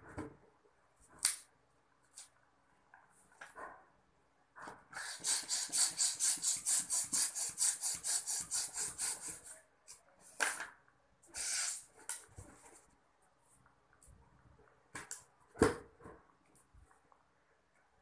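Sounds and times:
hand balloon pump puffing: 5.0s - 9.5s, 11.4s - 11.9s.

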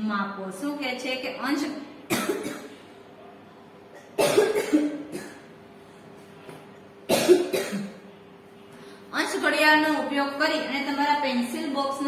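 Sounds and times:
person coughing: 2.1s - 2.8s, 3.9s - 5.5s, 7.1s - 8.0s.

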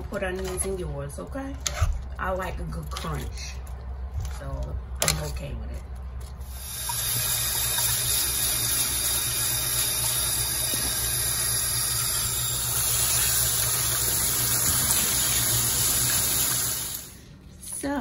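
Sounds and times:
faucet running into metal sink: 6.5s - 17.2s.

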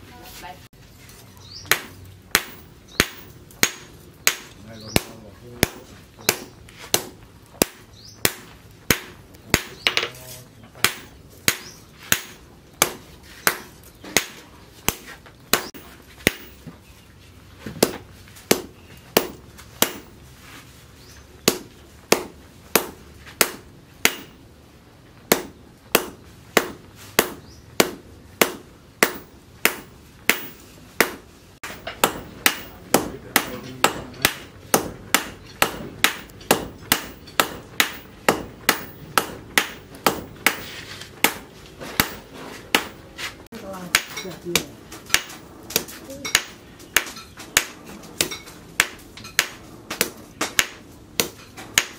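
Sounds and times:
hammer striking hot steel on anvil: 1.6s - 10.1s, 18.5s - 20.2s, 25.3s - 43.0s, 43.9s - 51.9s
sledgehammer blows: 25.3s - 43.5s.

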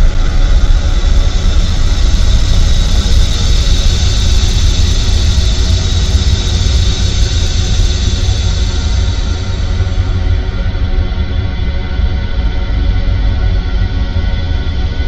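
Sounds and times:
ambient noise music: 0.0s - 15.0s.

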